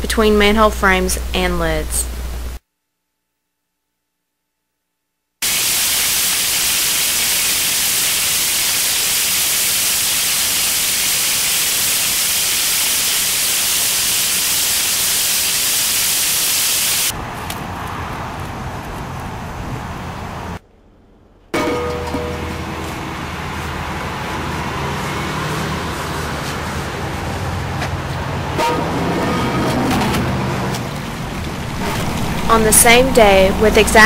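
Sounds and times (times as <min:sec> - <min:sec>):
water spraying onto pavement: 0:05.4 - 0:17.1.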